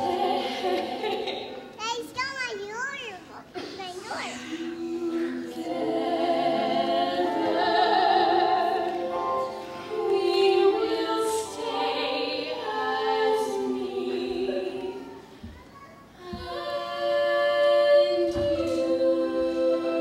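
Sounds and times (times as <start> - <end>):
two women singing: 0.0 - 1.6, 4.6 - 9.2, 9.9 - 15.0, 16.2 - 20.0.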